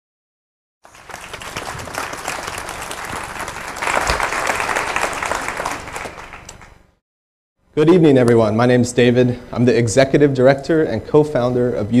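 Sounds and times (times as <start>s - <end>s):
audience applauding: 0.8s - 6.8s.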